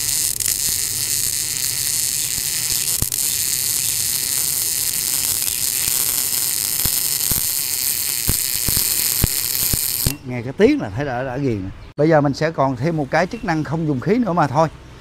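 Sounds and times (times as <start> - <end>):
welding arc buzzing hiss: 0.0 - 10.2
welding spatter pops: 0.0 - 10.2.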